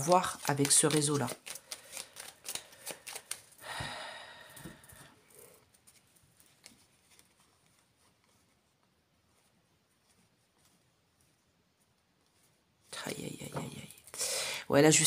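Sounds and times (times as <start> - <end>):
cards shuffling: 0.0 - 3.6, 5.6 - 8.6
faint card handling: 0.0 - 3.6, 5.6 - 13.0.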